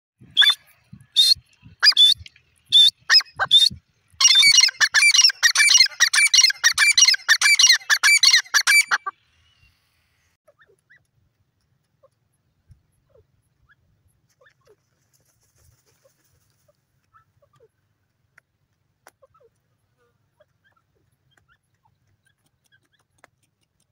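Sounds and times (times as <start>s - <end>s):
bird high-pitched calls: 0.3s - 11.0s.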